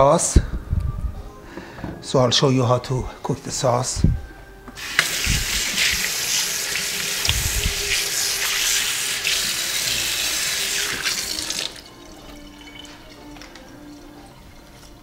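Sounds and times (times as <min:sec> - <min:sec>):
tap running water into sink: 0:04.8 - 0:12.0.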